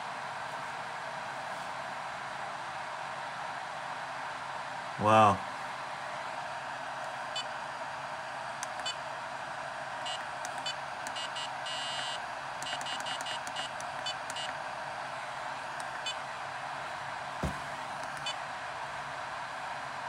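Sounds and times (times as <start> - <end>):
cooling fan whirring: 0.0 - 20.0
charger beeping: 10.0 - 14.6.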